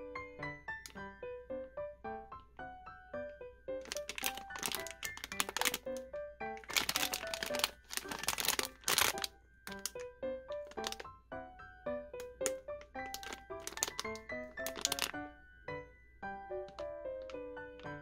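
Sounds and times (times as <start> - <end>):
light background piano music: 0.0 - 18.0
plastic foil wrapper crinkling: 3.8 - 10.0, 10.6 - 11.1, 12.2 - 15.2.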